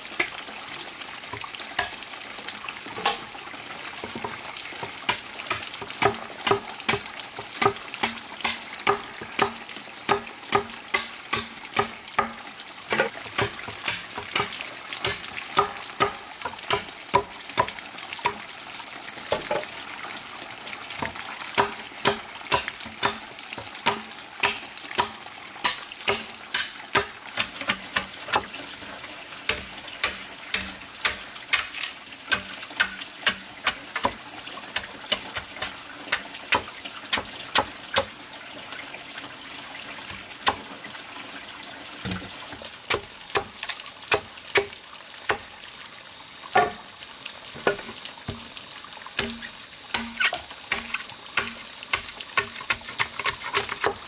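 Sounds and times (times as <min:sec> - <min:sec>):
machete chopping bamboo: 0:05.1 - 0:18.4, 0:21.0 - 0:28.5, 0:29.5 - 0:34.2, 0:34.8 - 0:38.2, 0:40.4 - 0:40.6, 0:42.9 - 0:45.5, 0:49.2 - 0:54.0.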